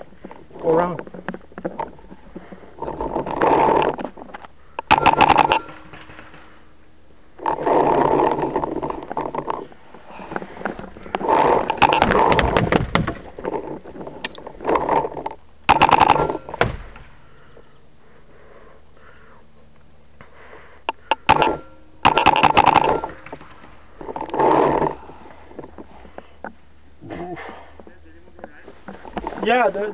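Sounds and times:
rapid paintball marker shots: 0:04.8 - 0:06.7, 0:15.7 - 0:17.2, 0:20.9 - 0:23.8
hard breathing in mask: 0:17.1 - 0:21.8.

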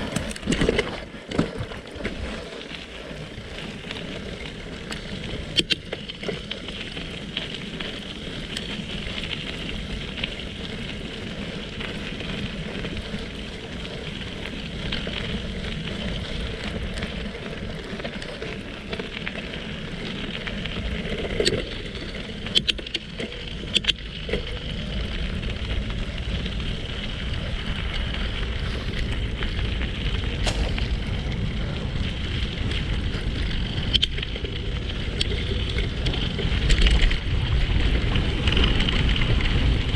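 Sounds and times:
bicycle tyres on gravel: 0:00.0 - 0:39.9
bike rattling over bumps: 0:00.0 - 0:39.9
wind buffeting microphone: 0:08.6 - 0:39.9.

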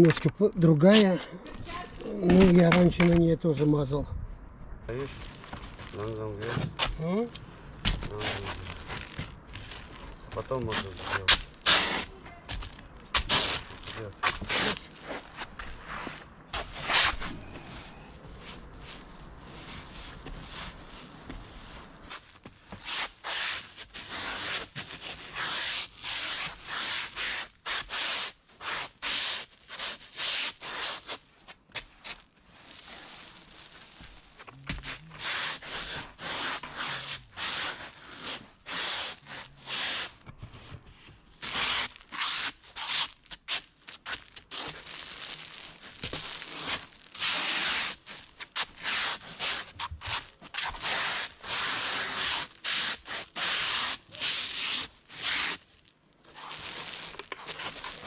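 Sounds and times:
stiff brush rasping on roofing: 0:10.4 - 0:12.2, 0:13.1 - 0:19.0, 0:19.6 - 0:33.3, 0:33.9 - 0:40.2, 0:41.4 - 0:45.0, 0:45.9 - 0:55.6.

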